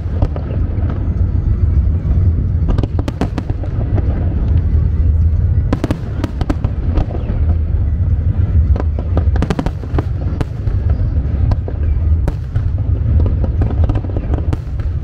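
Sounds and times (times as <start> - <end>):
deep rumble of bursting shells: 0.0 - 15.0
fireworks bangs and crackles: 0.0 - 15.0.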